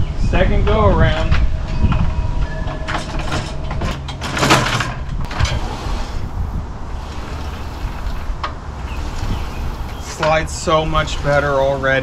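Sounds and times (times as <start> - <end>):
saw carriage scraping along metal rails: 2.4 - 12.0.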